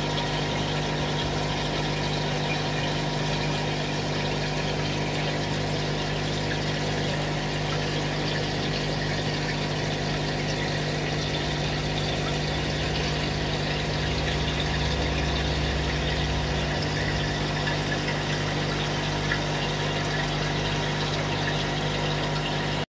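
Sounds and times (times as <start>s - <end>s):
mechanical hum with hiss: 0.0s - 22.8s.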